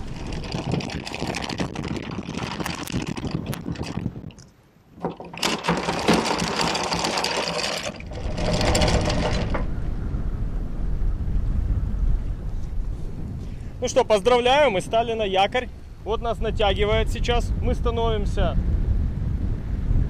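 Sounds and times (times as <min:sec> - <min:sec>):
anchor chain rattling out: 0:00.0 - 0:09.8.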